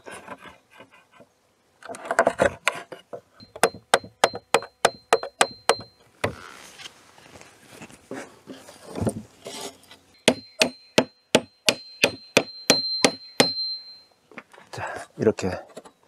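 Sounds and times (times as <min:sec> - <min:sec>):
scraping and handling of wood: 0:00.0 - 0:04.2, 0:05.8 - 0:10.1
hammer striking wood: 0:03.4 - 0:05.9, 0:10.2 - 0:13.8.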